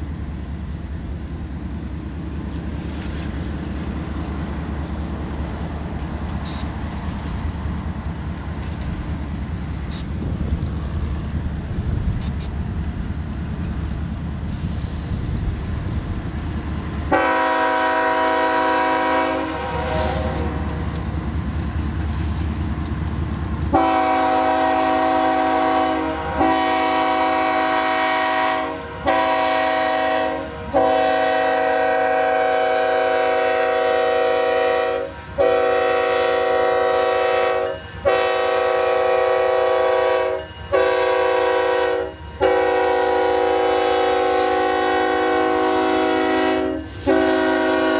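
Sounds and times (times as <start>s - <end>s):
diesel engines rumbling: 0.0s - 47.9s
locomotive air horn blasts: 17.1s - 20.6s, 23.7s - 47.9s.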